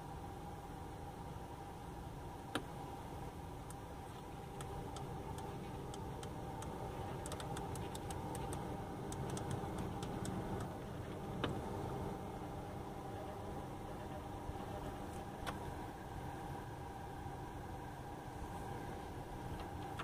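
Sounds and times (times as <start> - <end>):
steady hum: 0.0 - 20.0
rotary knob clicking: 4.6 - 10.7.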